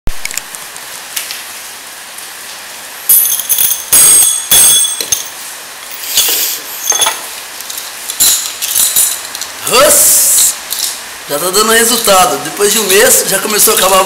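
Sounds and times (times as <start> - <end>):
metal chain clanking and ringing: 3.1 - 5.3, 6.2 - 7.2.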